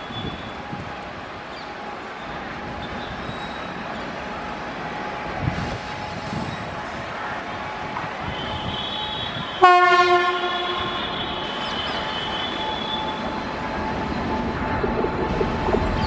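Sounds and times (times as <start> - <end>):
train rolling by rumble: 0.0 - 16.0
wheels squealing: 2.8 - 4.1
locomotive horn blast: 8.2 - 13.4.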